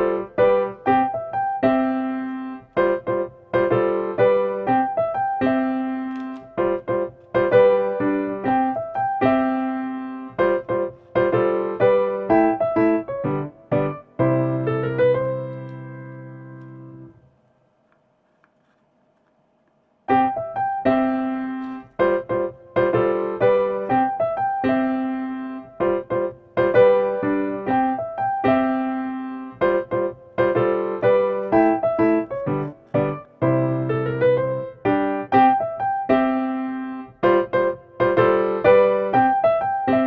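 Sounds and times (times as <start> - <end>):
light piano music: 0.0 - 17.3, 20.0 - 40.0.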